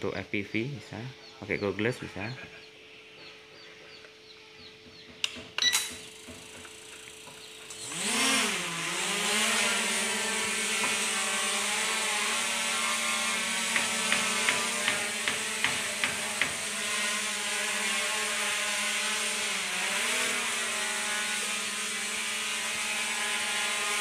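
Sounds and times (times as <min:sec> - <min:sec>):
quadcopter propeller whine: 0:04.9 - 0:24.0.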